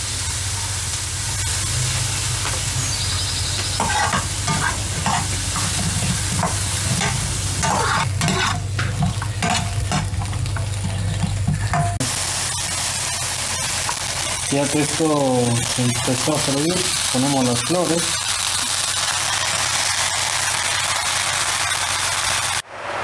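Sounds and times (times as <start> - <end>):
vegetables sizzling in oil: 0.0 - 22.6
metal spoon scraping a pan: 3.8 - 12.0.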